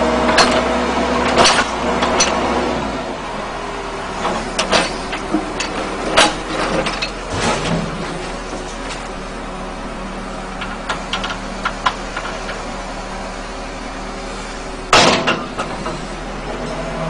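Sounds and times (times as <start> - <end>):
diesel engine running: 0.0 - 17.0
load crashing into steel truck bed: 0.3 - 2.4, 4.2 - 9.2, 14.9 - 16.1
sharp metal clanks: 14.9 - 16.0.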